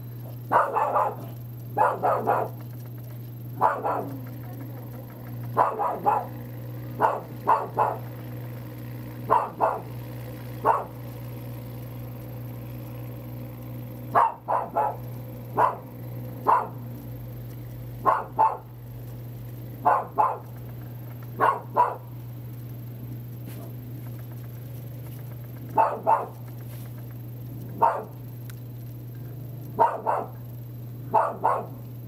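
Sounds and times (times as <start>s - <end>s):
low hum: 0.0s - 32.0s
dog barking: 0.2s - 2.7s, 3.6s - 4.3s, 5.3s - 8.2s, 9.2s - 11.1s, 14.1s - 16.9s, 18.0s - 18.8s, 19.8s - 20.6s, 21.2s - 22.2s, 23.5s - 23.8s, 25.7s - 26.5s, 27.7s - 28.2s, 29.7s - 30.4s, 31.0s - 31.9s.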